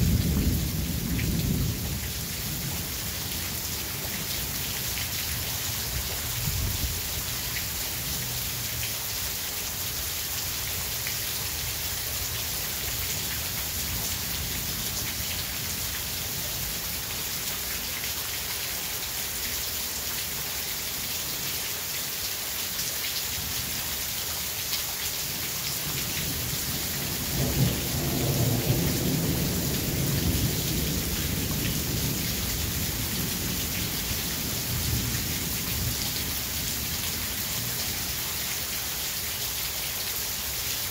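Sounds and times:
thunder rumbling: 0.0s - 2.9s, 26.4s - 33.8s.

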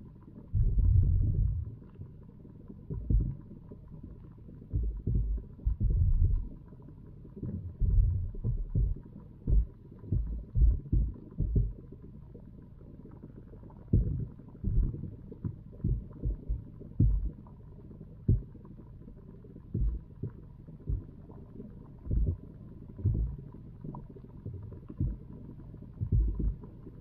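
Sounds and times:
faint steady hum: 0.0s - 27.0s
muffled underwater thumps: 0.5s - 2.1s, 2.8s - 3.5s, 4.6s - 6.6s, 7.3s - 11.9s, 13.8s - 17.5s, 18.2s - 18.6s, 19.7s - 21.3s, 22.0s - 23.5s, 24.4s - 25.4s, 26.0s - 26.7s.

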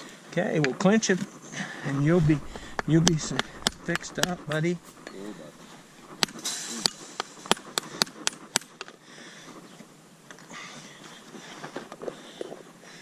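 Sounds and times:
hammer tapping horseshoe nails: 2.4s - 5.2s, 6.1s - 8.9s.

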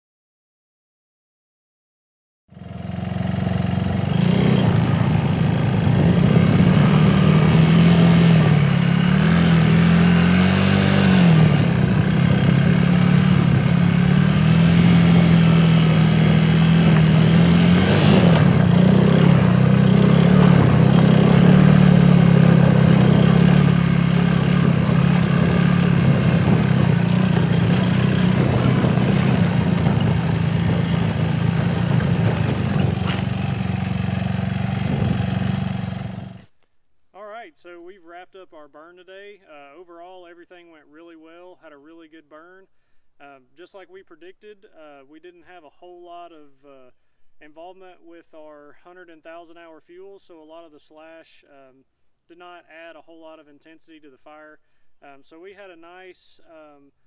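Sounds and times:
small engine running: 2.5s - 36.5s.

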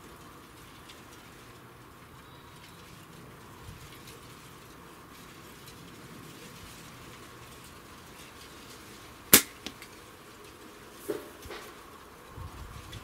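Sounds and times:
slingshot bands snapping: 9.3s - 9.9s.

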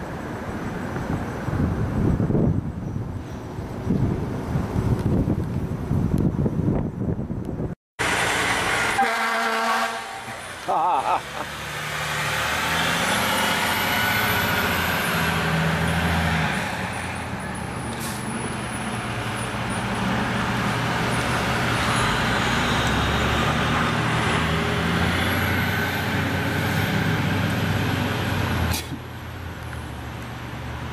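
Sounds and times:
heavy vehicles passing: 8.0s - 30.9s.

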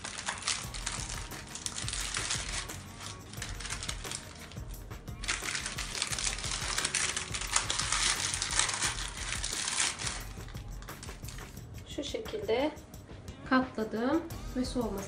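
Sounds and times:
baking paper crinkling: 0.0s - 11.6s.

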